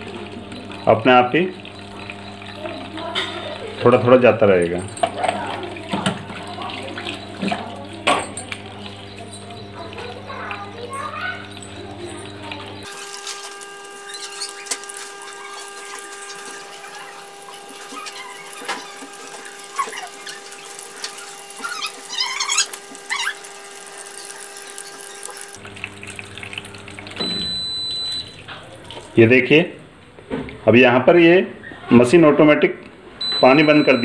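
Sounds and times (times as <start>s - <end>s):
water filling washing machine: 0.0s - 32.6s, 33.2s - 34.0s
washing machine hum: 0.0s - 34.0s
short high beep: 33.2s - 34.0s.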